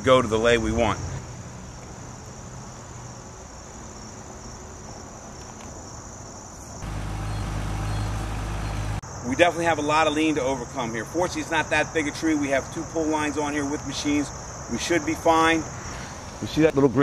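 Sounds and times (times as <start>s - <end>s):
insects buzzing: 0.0s - 16.7s.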